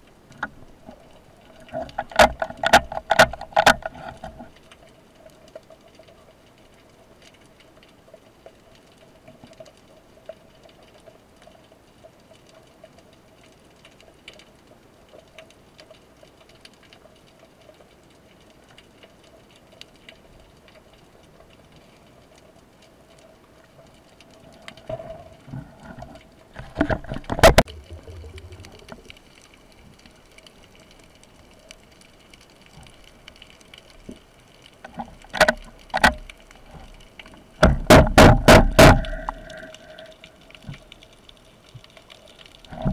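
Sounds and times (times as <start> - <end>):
light crackling ticks: 0.0 - 37.9, 38.5 - 42.9
faint underwater hum: 27.6 - 33.7, 38.9 - 41.8
loud knocks: 37.6 - 39.4.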